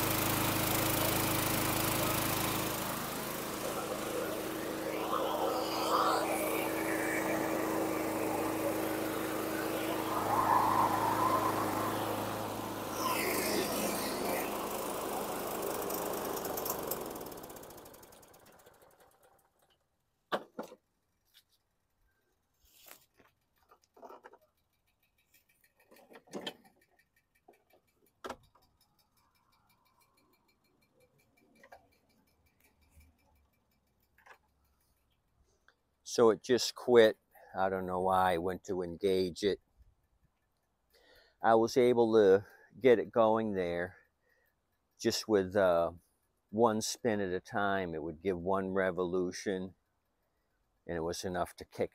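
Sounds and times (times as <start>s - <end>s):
lawn mower engine running: 0.0s - 19.7s
faint steady ticking: 26.6s - 36.1s, 39.6s - 41.4s, 44.0s - 45.2s.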